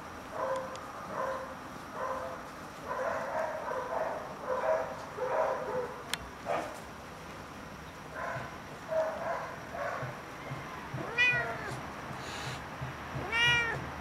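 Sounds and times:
cat meowing: 11.0 - 11.8, 13.2 - 13.8.

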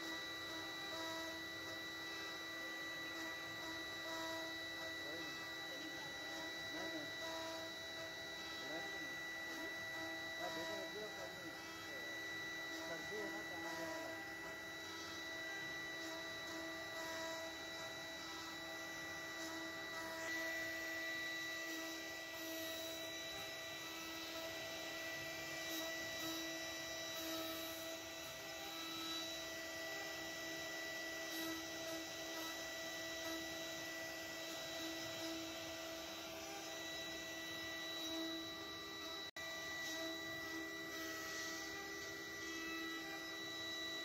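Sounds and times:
router bit cutting wood: 0.0 - 44.0
wood router spindle whine: 0.0 - 44.0.

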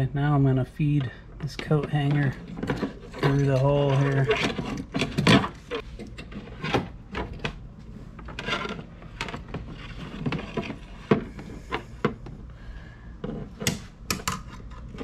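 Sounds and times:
wire scraping plastic hull: 1.0 - 12.2.

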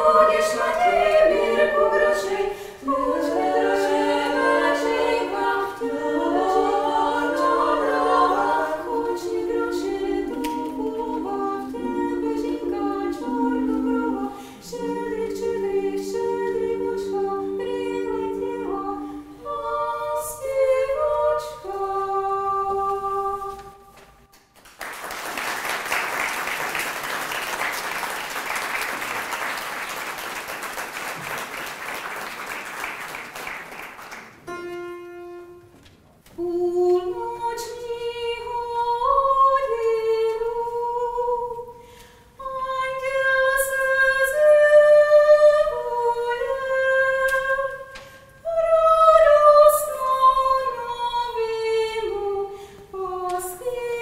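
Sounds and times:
choir singing a cappella: 0.0 - 24.2, 36.4 - 54.0
audience applause: 24.6 - 34.4.

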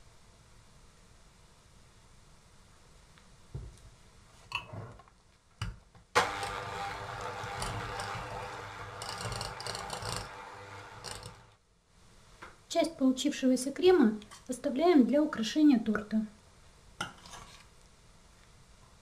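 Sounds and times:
electric hand mixer beating: 6.2 - 11.6.

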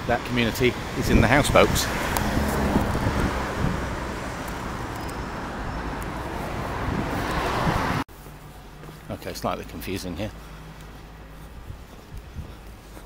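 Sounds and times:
road traffic rumble: 0.0 - 13.0
wind on the microphone: 0.7 - 8.0, 11.5 - 13.0.

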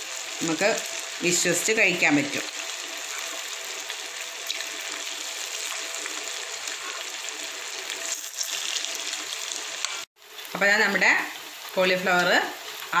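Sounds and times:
food deep-frying in oil: 0.0 - 13.0.

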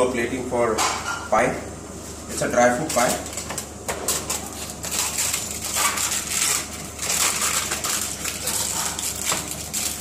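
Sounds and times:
aluminium foil crumpling: 2.8 - 10.0.

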